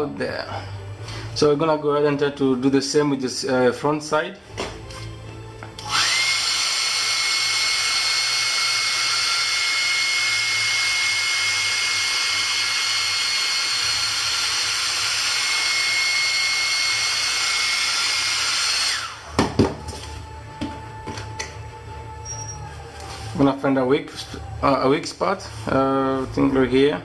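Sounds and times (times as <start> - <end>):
hair dryer running: 5.7 - 21.6.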